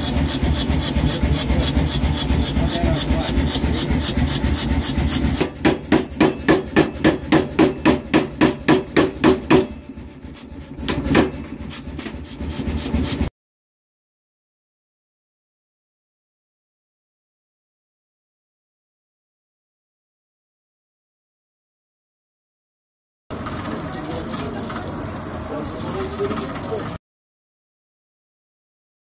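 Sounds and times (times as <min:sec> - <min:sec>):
heavy hammer blows on iron: 0:00.0 - 0:09.9
power hammer running: 0:00.0 - 0:10.1, 0:23.3 - 0:27.0.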